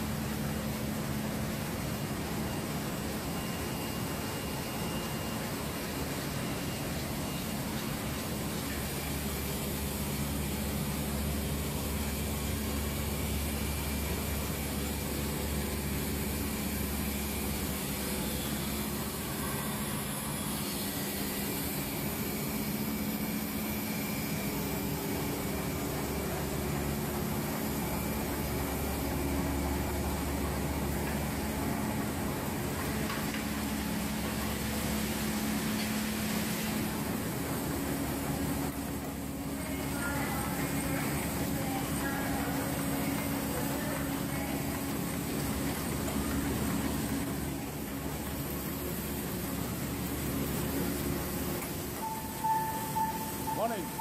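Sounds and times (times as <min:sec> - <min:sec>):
printing press mechanical drone: 0:00.0 - 0:54.0.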